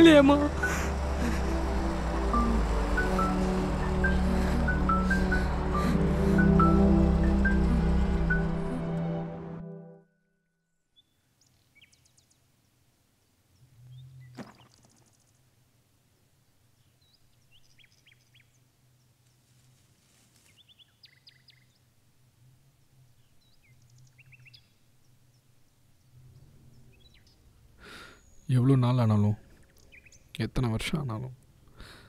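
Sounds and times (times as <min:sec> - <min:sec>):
low steady hum: 0:00.0 - 0:09.8
faint bird chirps: 0:20.5 - 0:21.9.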